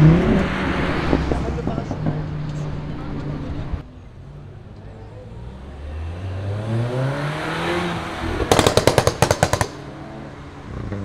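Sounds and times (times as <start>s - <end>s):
car engine accelerating: 0.0s - 11.0s
exhaust pops and bangs: 8.2s - 10.0s.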